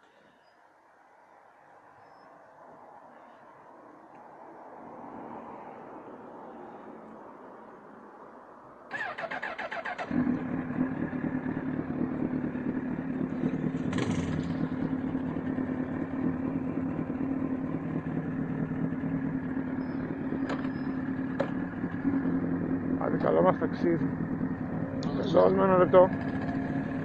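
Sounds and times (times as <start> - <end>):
motorcycle starter cranking: 8.9 - 10.3
motorcycle engine idling: 8.9 - 27.0.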